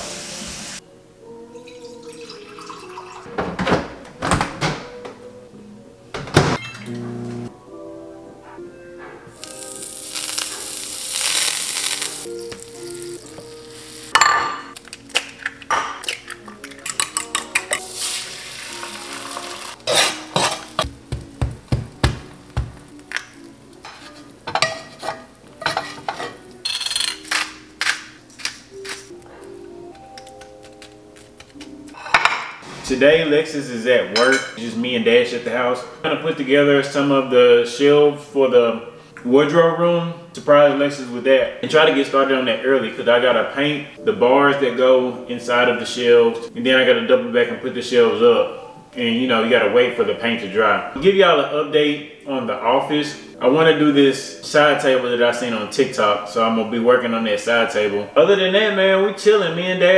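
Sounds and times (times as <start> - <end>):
steady hiss: 0.0 - 0.8
quiet background music: 0.0 - 59.9
refrigerator door opening and shutting: 3.3 - 5.3, 6.1 - 7.4
pepper grinder grinding: 9.4 - 14.1, 26.6 - 29.2, 30.0 - 31.9
eggs sizzling in pan: 9.4 - 26.7
utensils knocking on bowl and pan: 23.9 - 26.9.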